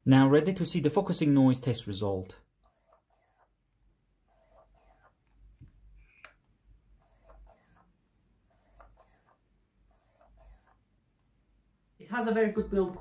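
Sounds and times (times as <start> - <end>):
faint autofocus motor whirs: 4.2 - 10.8.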